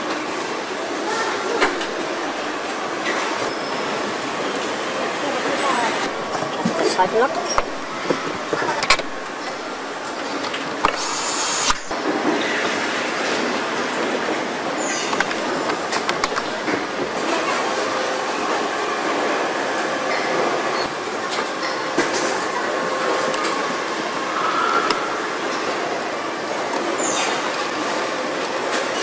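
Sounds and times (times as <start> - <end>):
factory mechanical din: 0.0 - 29.0
clicks and clanks of parts: 7.5 - 9.6
short loud hiss: 10.9 - 11.9.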